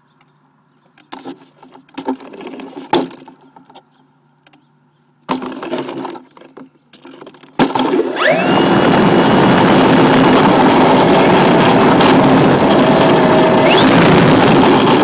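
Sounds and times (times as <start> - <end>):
model airplane motor and propeller: 8.0 - 15.0.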